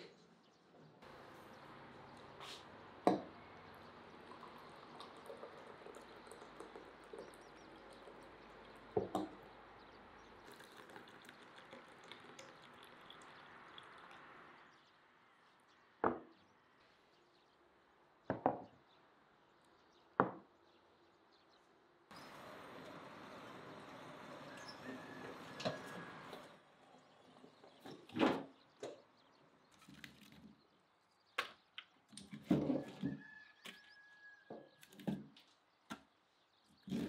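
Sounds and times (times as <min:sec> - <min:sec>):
tea pouring into glass cups: 0:03.0 - 0:14.7.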